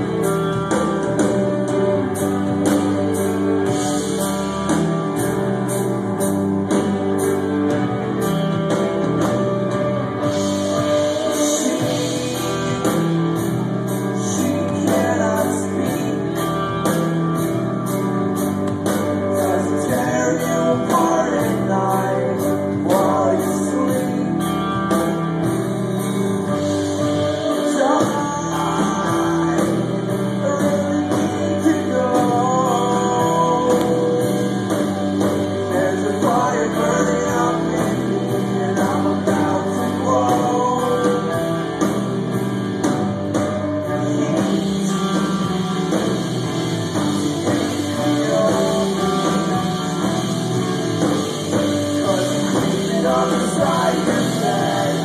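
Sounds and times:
bass guitar: 0.0s - 55.0s
distorted electric guitars: 0.0s - 55.0s
drum kit with cymbal hits: 0.0s - 55.0s
person singing: 9.3s - 17.1s, 18.9s - 25.2s, 26.4s - 42.4s, 43.3s - 55.0s.

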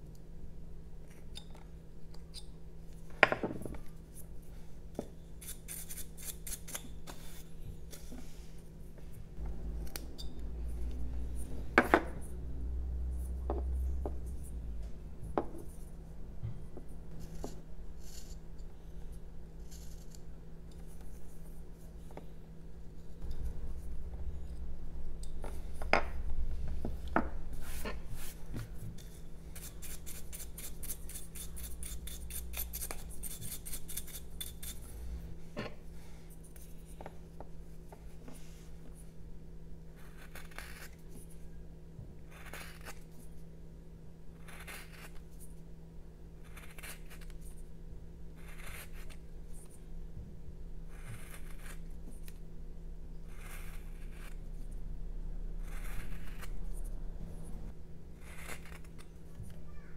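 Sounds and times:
knife carving wood: 5.0s - 8.1s, 17.2s - 22.2s, 29.0s - 34.8s, 40.0s - 41.4s, 42.3s - 43.4s, 44.4s - 45.6s, 46.4s - 47.6s, 48.4s - 49.8s, 50.9s - 52.4s, 53.2s - 54.7s, 55.6s - 57.0s, 58.2s - 59.6s.

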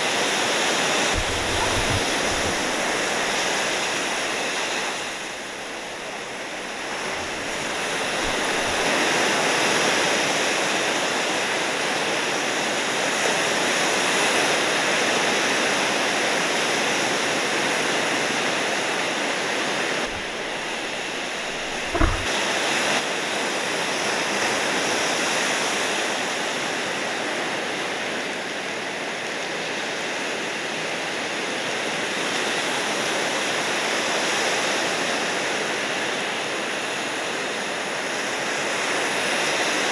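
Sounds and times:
ocean surf rushing: 0.0s - 11.8s, 18.7s - 23.0s
brief low thump: 20.1s - 22.3s.

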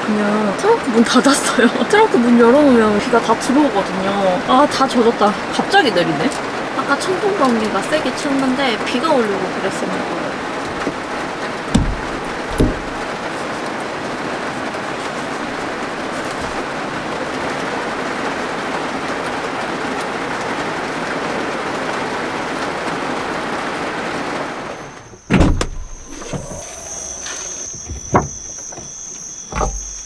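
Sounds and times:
rain on a van roof: 0.0s - 30.0s
dull thumps: 11.7s - 13.1s, 25.2s - 30.0s
cricket trill: 24.8s - 30.0s.

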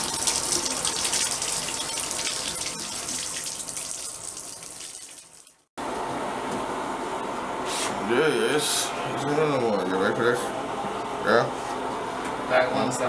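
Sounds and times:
shower water splashing into bathtub: 0.0s - 5.7s.

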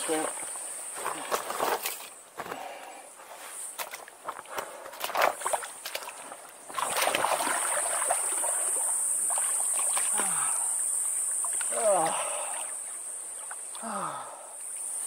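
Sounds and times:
water splashing: 3.7s - 14.9s.

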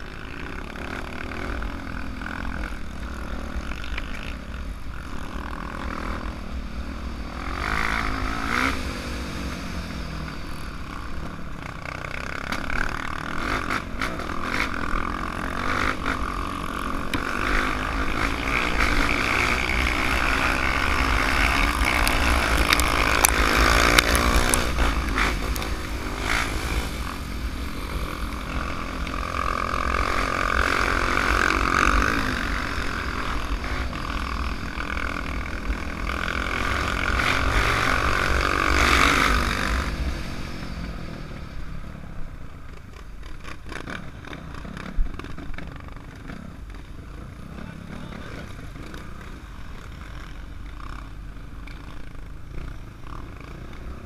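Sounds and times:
dirt bike engine revving: 0.0s - 41.7s.

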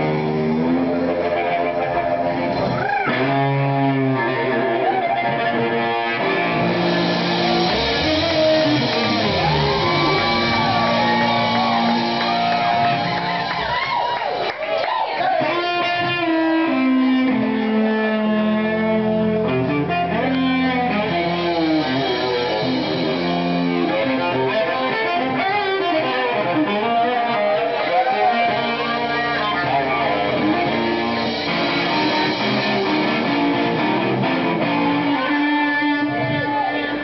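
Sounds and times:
electric guitar: 0.0s - 37.0s.

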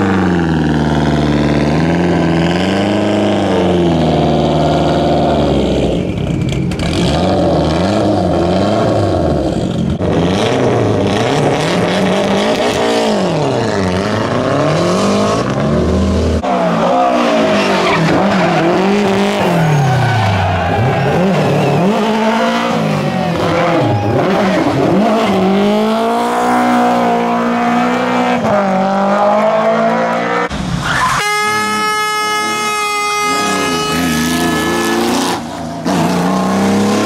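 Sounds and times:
rally car engines revving: 0.0s - 37.0s
tyre squeal: 16.4s - 25.4s, 30.8s - 36.5s.

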